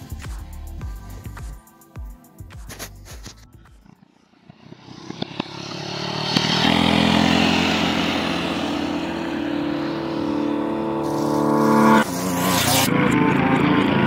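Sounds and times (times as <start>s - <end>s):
mini bike engines revving high: 3.8s - 14.0s.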